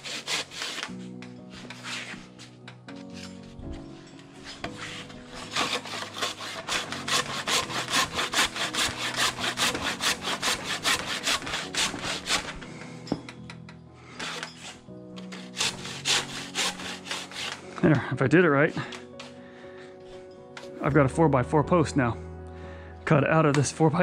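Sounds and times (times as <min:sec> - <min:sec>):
hand saw cutting wood: 0:00.0 - 0:02.4, 0:04.4 - 0:12.9, 0:14.2 - 0:18.1.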